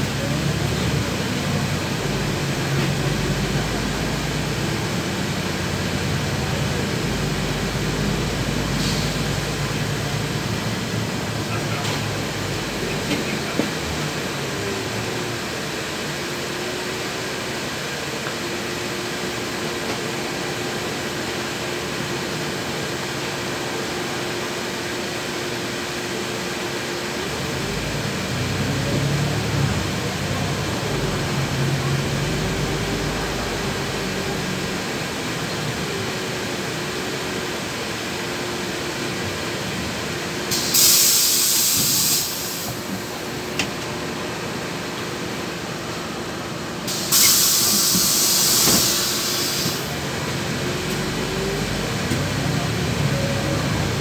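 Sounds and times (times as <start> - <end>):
bus drivetrain drone: 0.0 - 54.0
air brakes hissing: 8.6 - 9.5, 40.5 - 43.1, 46.9 - 49.9.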